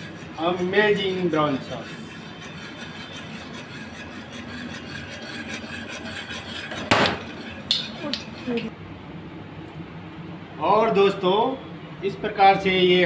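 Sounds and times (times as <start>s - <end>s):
whisk scraping metal pan: 0.0s - 8.7s.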